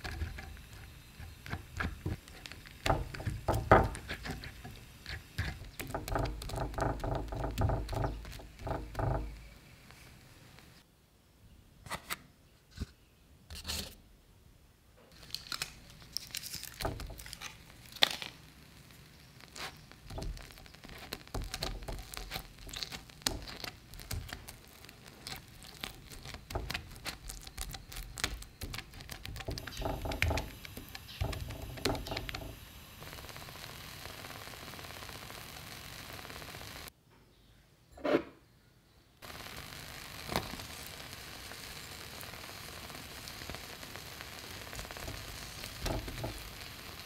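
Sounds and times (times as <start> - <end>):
spoon scraping: 0.0 - 9.4, 19.6 - 32.3
foil wrapper crinkling: 0.0 - 10.8, 15.1 - 36.7, 39.2 - 47.0
rice paper crackling in pan: 0.0 - 10.8, 15.1 - 36.9, 39.2 - 47.0.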